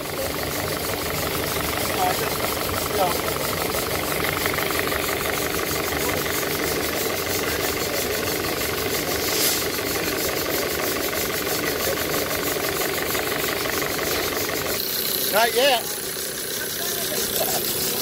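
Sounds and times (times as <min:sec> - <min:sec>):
engine running with knocking beat: 0:00.0 - 0:18.0
short hiss: 0:09.1 - 0:09.8.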